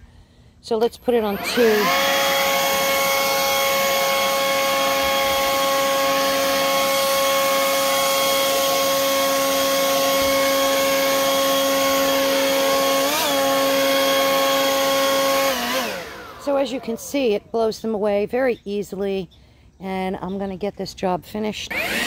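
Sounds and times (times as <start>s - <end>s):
leaf blower running: 0.8s - 17.4s, 21.7s - 22.0s.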